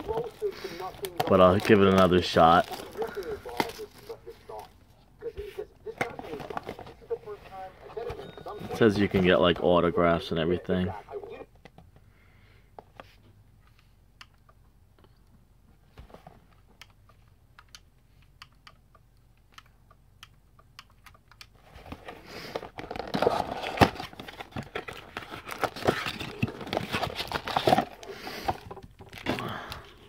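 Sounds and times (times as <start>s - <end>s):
cardboard crackling and tearing: 0.0s - 4.2s, 22.8s - 28.2s.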